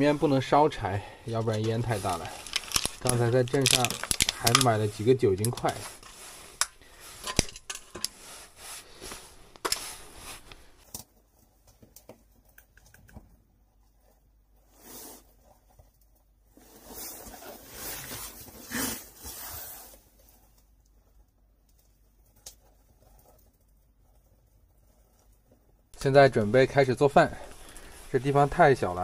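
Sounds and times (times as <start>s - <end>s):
soft rustling: 0.0s - 12.4s, 13.6s - 29.0s
plastic wrapper crinkling: 1.2s - 10.8s, 26.0s - 29.0s.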